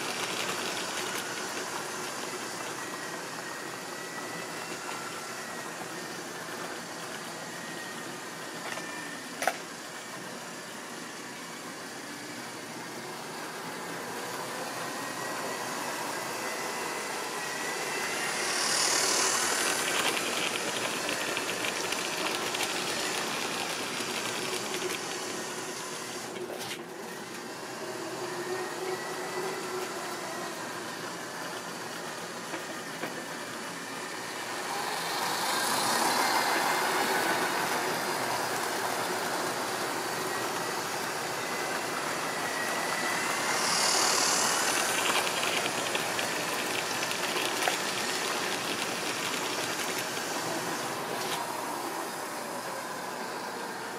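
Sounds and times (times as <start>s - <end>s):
model train wheel rattle: 0.0s - 2.9s, 18.4s - 25.6s, 43.3s - 50.4s
model train motor whine: 0.0s - 53.9s.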